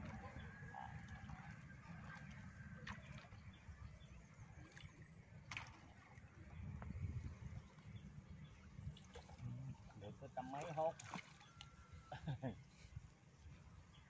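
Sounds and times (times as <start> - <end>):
water stirred by wading: 0.0 - 12.3
sharp water splashes: 4.5 - 6.4, 10.4 - 11.7.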